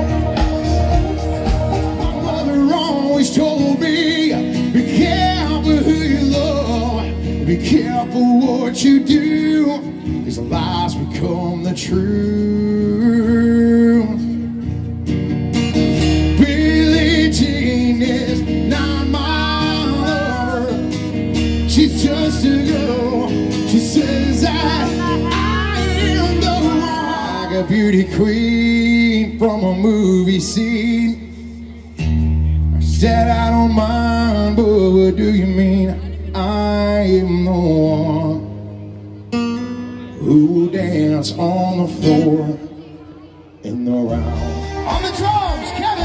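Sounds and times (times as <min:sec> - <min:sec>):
drum kit: 0:00.0 - 0:02.7
person singing: 0:00.0 - 0:14.3, 0:16.2 - 0:21.0, 0:21.6 - 0:31.4
bass guitar: 0:00.0 - 0:43.0, 0:43.6 - 0:46.0
electric guitars: 0:00.0 - 0:46.0.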